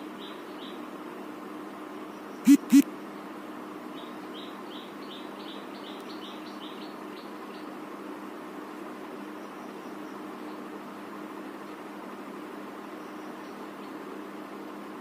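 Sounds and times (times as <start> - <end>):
faint high chirps: 2.5 - 2.8.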